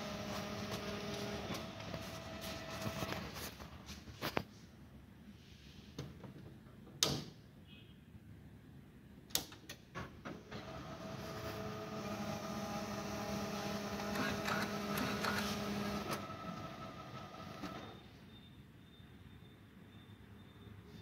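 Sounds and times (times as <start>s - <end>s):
copier motors humming: 0.0s - 3.8s, 10.5s - 18.0s.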